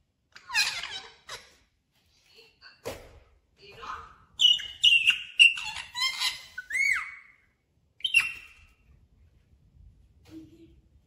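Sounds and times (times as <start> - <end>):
parakeet chirping and squawking: 0.4 - 1.7, 4.3 - 7.4, 8.0 - 8.8.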